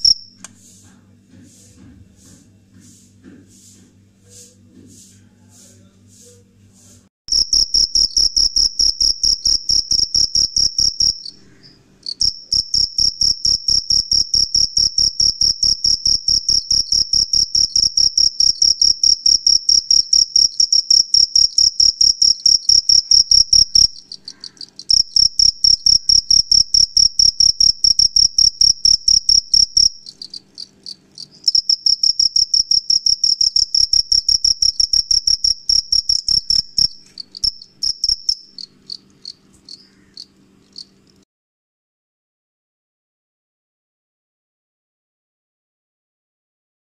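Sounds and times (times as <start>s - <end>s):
cricket chirping: 0.0s - 0.4s, 7.3s - 41.2s.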